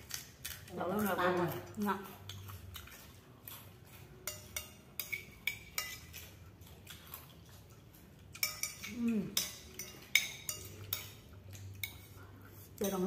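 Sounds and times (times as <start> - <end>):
spoon clinking against bowl: 3.9 - 6.4, 8.3 - 12.2.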